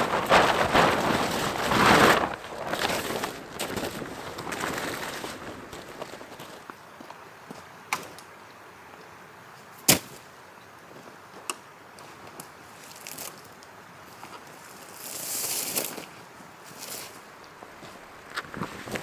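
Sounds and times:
rustling scrape: 0.0 - 6.6, 14.6 - 17.2.

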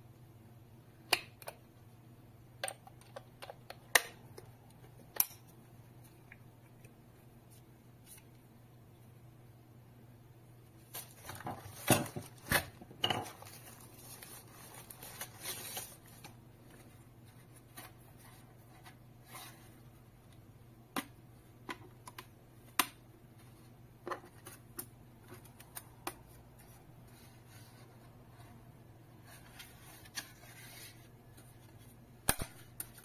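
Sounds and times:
tissue paper rustling: 13.2 - 16.3.

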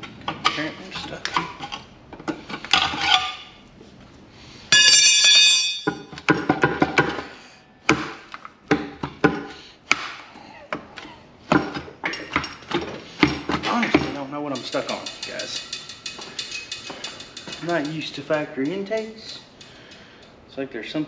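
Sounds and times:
metal tools clanking: 0.0 - 3.6, 4.7 - 6.2, 13.6 - 20.4.

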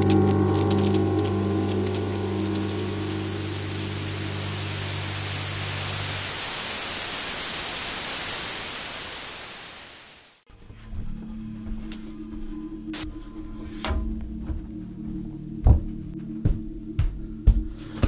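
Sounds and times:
steady high whine: 0.0 - 10.4
low hum: 0.0 - 17.7
television static hiss: 2.0 - 10.4.

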